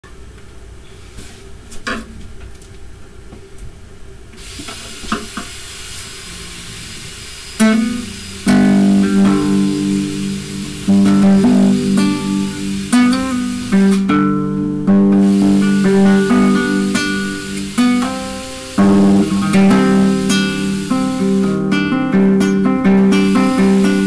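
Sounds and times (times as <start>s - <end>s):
acoustic guitar chords strummed: 7.6s - 24.0s.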